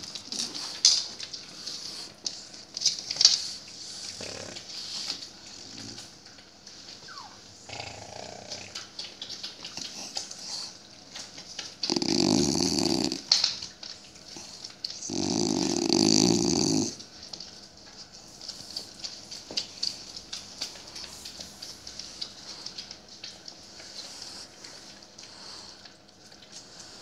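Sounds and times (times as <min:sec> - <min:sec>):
dog growling: 0:03.8 - 0:06.3, 0:07.1 - 0:10.8, 0:11.7 - 0:13.7, 0:14.3 - 0:17.1.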